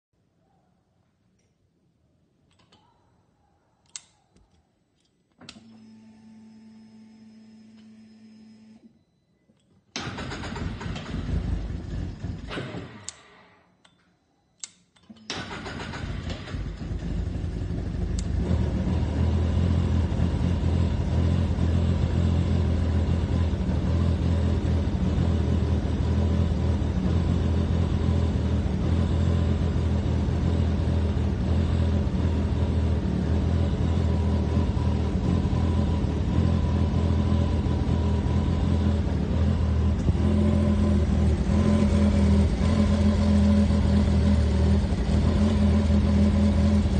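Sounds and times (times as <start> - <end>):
sharp clicks: 3.8 - 5.6, 13.0 - 15.3
vehicle engine starting and idling: 9.9 - 13.6, 15.2 - 46.9.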